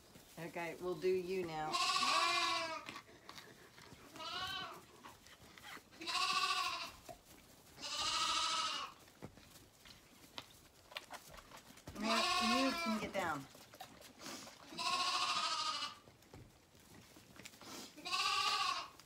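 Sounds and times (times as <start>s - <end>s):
lambs bleating: 1.7s - 3.0s, 4.1s - 4.9s, 6.0s - 7.1s, 7.8s - 9.0s, 12.0s - 13.4s, 14.6s - 16.0s, 18.0s - 19.0s.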